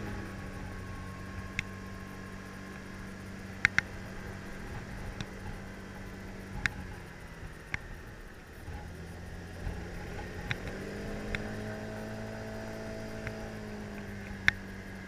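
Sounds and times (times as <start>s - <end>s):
road and wind noise: 0.0s - 15.0s
scooter engine humming: 0.0s - 15.0s
sharp clicks: 3.6s - 4.0s, 10.4s - 11.5s, 13.2s - 14.7s.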